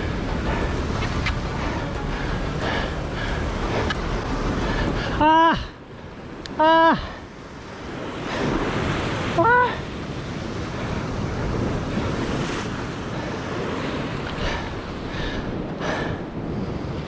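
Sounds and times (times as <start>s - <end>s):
surf on rocky shore: 0.0s - 17.0s
wind buffeting microphone: 0.0s - 17.0s.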